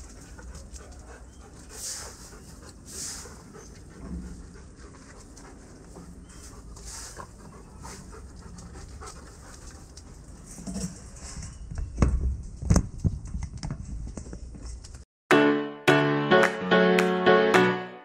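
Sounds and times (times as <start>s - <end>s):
dog panting: 0.0s - 10.4s
music with piano chords: 15.3s - 18.0s.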